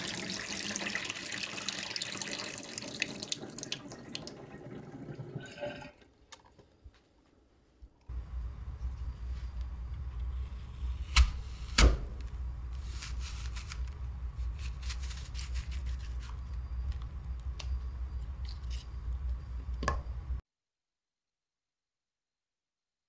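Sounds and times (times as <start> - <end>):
steady low hum: 8.1 - 20.4
apple crunching: 11.0 - 16.5.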